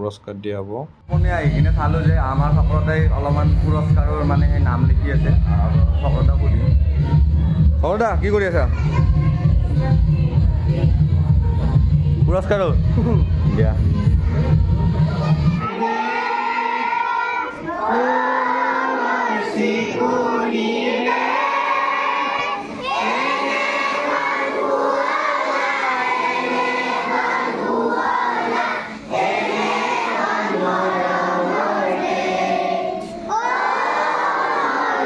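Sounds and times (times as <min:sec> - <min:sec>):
children and women singing: 0:08.7 - 0:12.2, 0:13.2 - 0:35.0.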